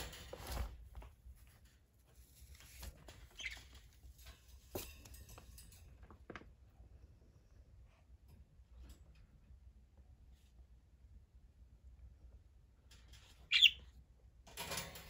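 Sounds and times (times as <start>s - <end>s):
quiet rustling: 0.0s - 10.8s
bird squeak: 3.4s - 3.7s, 13.5s - 13.8s.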